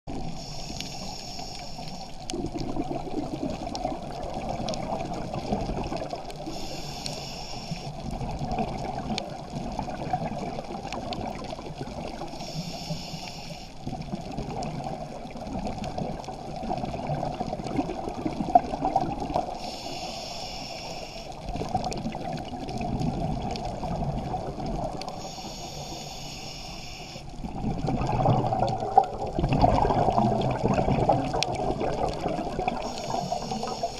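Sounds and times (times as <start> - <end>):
muffled underwater rush: 0.1 - 33.9
diver exhaling bubbles: 2.3 - 6.2, 27.4 - 33.9.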